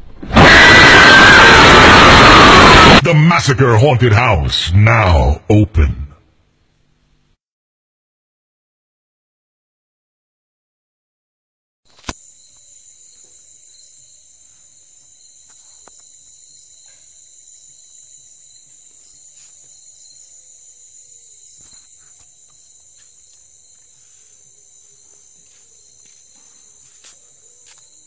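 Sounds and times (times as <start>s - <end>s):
night insects chirring: 0.4s - 3.0s, 11.9s - 28.0s.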